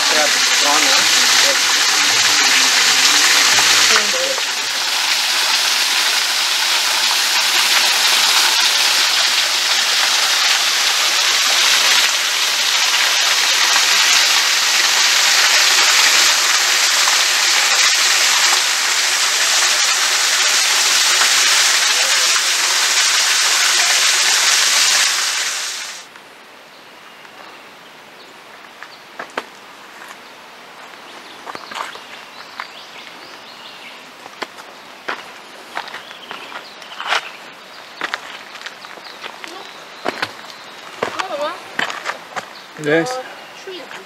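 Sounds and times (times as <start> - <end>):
waterfall splashing into pool: 0.0 - 26.1.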